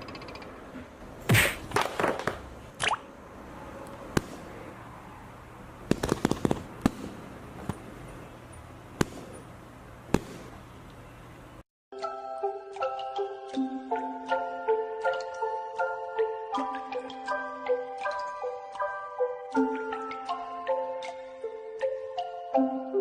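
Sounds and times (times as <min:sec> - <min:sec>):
sharp clicks and pops: 0:05.9 - 0:07.1
low steady hum: 0:06.6 - 0:11.6
music: 0:11.9 - 0:23.0.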